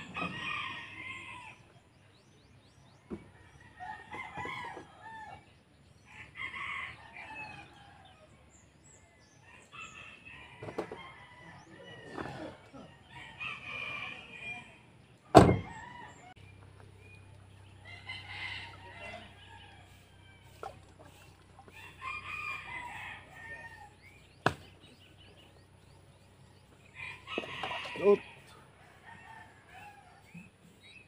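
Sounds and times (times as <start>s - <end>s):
roosters crowing: 0.0s - 2.2s, 2.9s - 31.0s
truck door slamming: 15.3s - 15.8s.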